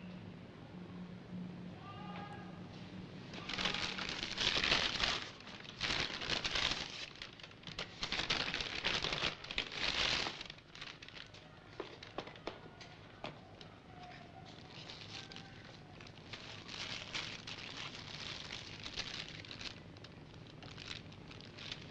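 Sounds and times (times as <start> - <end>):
paper bag rustling: 3.3 - 12.6, 13.9 - 21.9.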